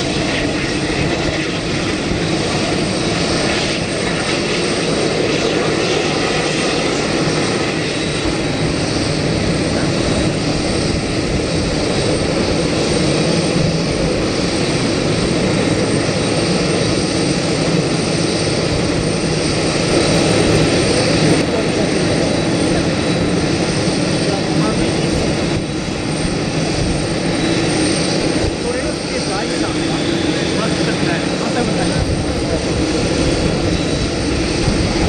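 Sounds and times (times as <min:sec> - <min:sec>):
jet engines roaring: 0:00.0 - 0:35.0.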